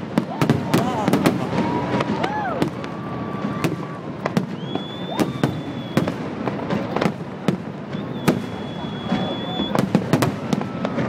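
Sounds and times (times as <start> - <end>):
fireworks bursting: 0.0 - 11.0
high steady whistle: 4.4 - 6.2, 7.9 - 9.9.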